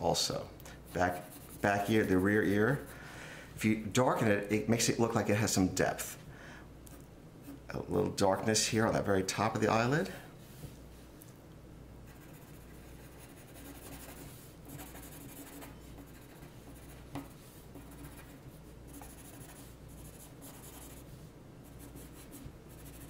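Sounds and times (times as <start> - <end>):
pencil scratching on paper: 0.9 - 2.9, 12.1 - 23.0.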